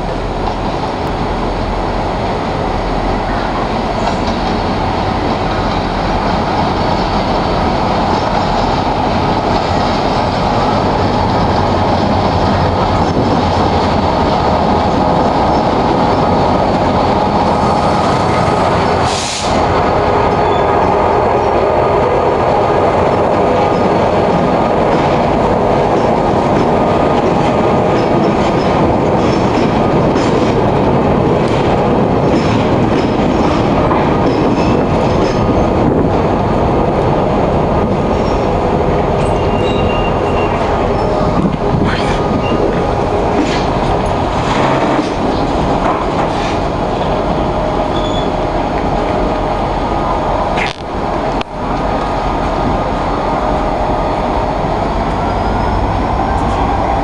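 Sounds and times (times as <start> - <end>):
locomotive engine and wheels rumbling: 0.0 - 57.0
wheels clacking over rail joints: 23.0 - 36.3, 37.9 - 49.2.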